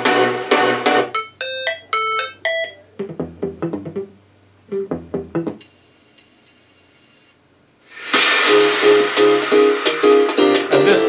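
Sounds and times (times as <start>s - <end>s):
faint hum: 0.0s - 8.0s
short plucked notes: 1.4s - 5.6s.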